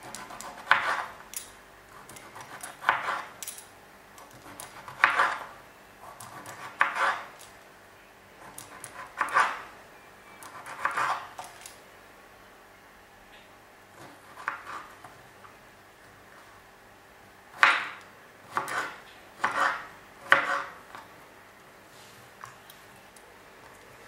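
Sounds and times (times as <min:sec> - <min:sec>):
knife slicing cucumber on wooden board: 0:00.0 - 0:01.1, 0:02.3 - 0:03.3, 0:06.1 - 0:07.4, 0:17.6 - 0:20.8.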